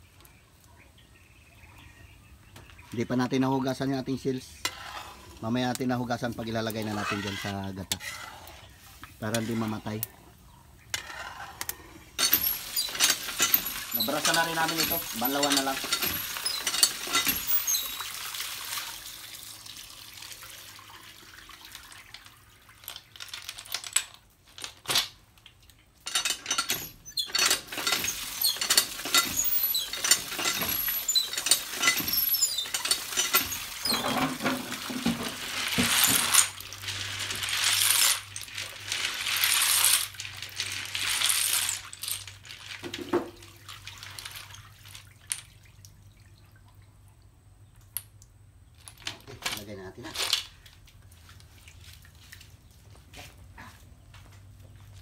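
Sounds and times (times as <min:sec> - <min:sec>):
shells clinking and rattling: 0:12.2 - 0:18.1, 0:26.0 - 0:34.8, 0:35.5 - 0:43.0
water splashing into metal basin: 0:12.2 - 0:23.2.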